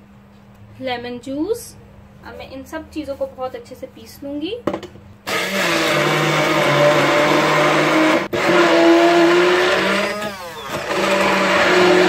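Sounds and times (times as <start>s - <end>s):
hand blender motor whining: 5.3s - 12.0s.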